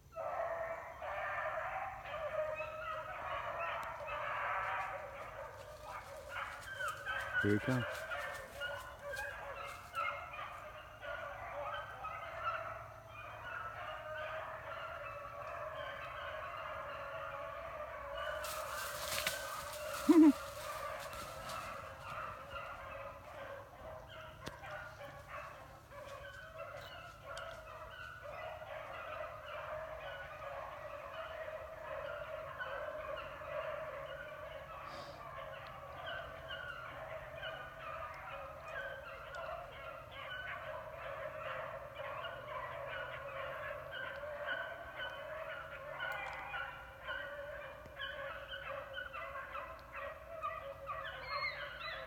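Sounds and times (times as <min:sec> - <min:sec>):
dogs baying: 0:00.1 - 0:52.0.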